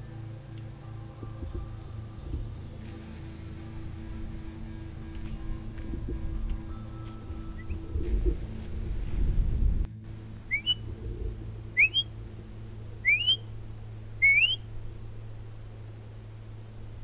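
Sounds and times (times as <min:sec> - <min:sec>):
low rumble: 0:00.0 - 0:17.0
sharp rising whistles: 0:07.6 - 0:07.8, 0:10.5 - 0:10.9, 0:11.8 - 0:12.1, 0:13.0 - 0:13.5, 0:14.2 - 0:14.7.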